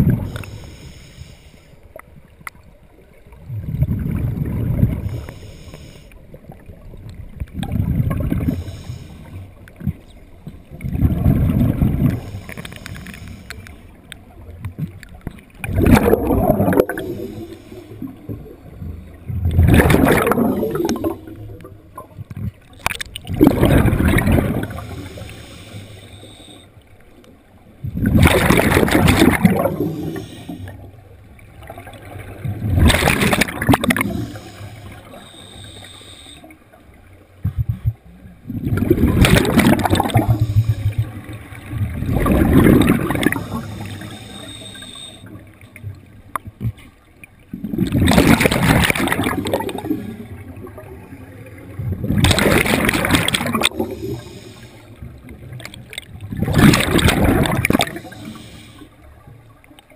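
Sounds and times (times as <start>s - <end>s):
exhaled bubbles gurgling: 0.0s - 0.7s, 3.0s - 13.4s, 14.0s - 26.0s, 27.7s - 35.7s, 36.5s - 59.7s
diver breathing through regulator: 0.2s - 1.9s, 5.0s - 6.2s, 8.3s - 9.5s, 11.8s - 14.0s, 16.7s - 18.3s, 24.1s - 26.8s, 29.2s - 30.8s, 33.0s - 36.6s, 39.3s - 41.4s, 42.6s - 45.5s, 53.2s - 55.1s, 57.4s - 59.0s.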